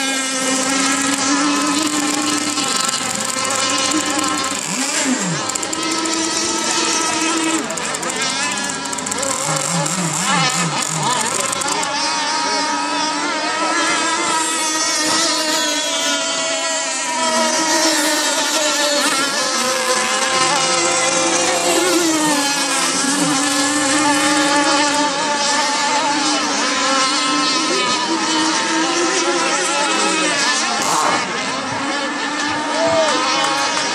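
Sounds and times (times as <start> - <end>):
racing boat engine at high revs: 0.0 - 33.9.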